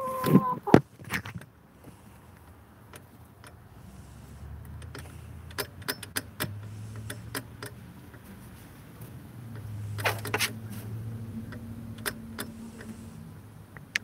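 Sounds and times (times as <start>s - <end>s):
chicken pecking and scratching: 0.0s - 1.4s.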